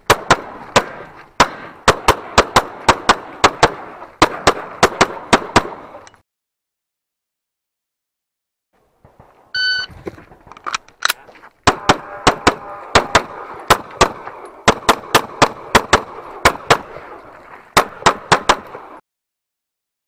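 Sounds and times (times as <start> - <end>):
pistol shots: 0.0 - 6.0, 11.1 - 17.2, 17.8 - 19.0
shot timer beep: 9.6 - 9.9.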